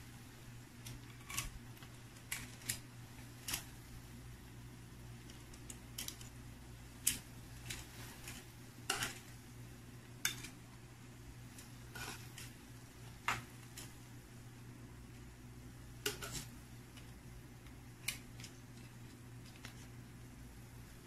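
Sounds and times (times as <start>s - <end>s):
low steady hum: 0.0s - 21.0s
tongs clicking on pan and plate: 5.2s - 6.4s, 7.0s - 9.4s, 10.2s - 10.7s, 11.5s - 14.1s, 16.0s - 19.8s.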